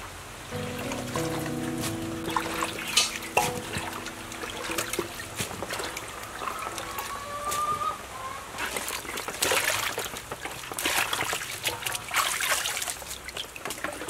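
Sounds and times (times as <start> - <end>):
water trickling and dripping: 0.6 - 7.6
wet splashes and plops: 8.6 - 14.0.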